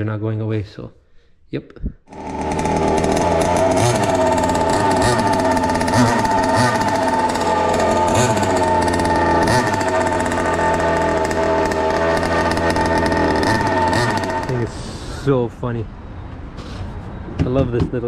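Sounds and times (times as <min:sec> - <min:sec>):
two-stroke engine running: 0:02.1 - 0:15.3.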